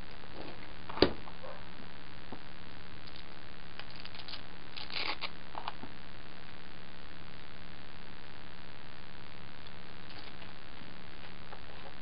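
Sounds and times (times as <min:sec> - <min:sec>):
faint scratches and clicks: 0:03.0 - 0:05.8, 0:09.6 - 0:12.0
knife cutting velcro: 0:03.8 - 0:05.3.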